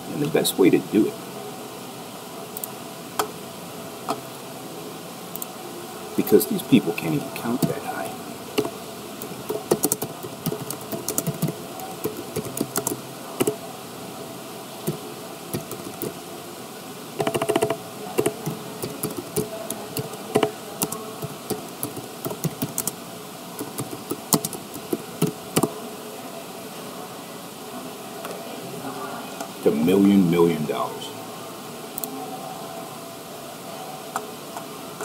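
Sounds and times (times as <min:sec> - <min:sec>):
keyboard typing: 0:07.5 - 0:07.8, 0:08.6 - 0:13.6, 0:14.8 - 0:16.2, 0:17.2 - 0:23.0, 0:23.6 - 0:25.7.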